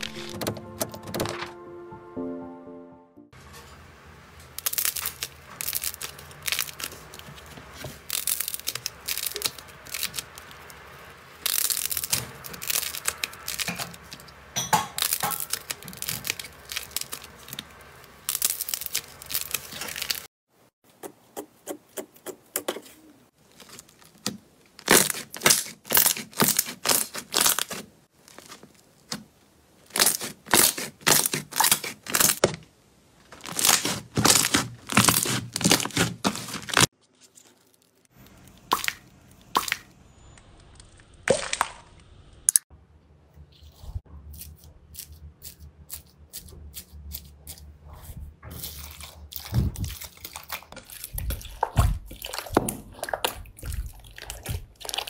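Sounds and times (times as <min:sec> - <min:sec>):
hands kneading sticky slime: 0:33.4 - 0:36.9, 0:45.9 - 0:55.0.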